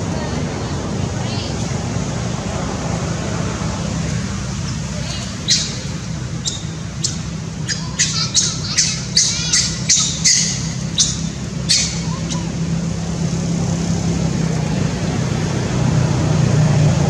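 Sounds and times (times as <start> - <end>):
monkey screaming squeals: 4.7 - 12.6.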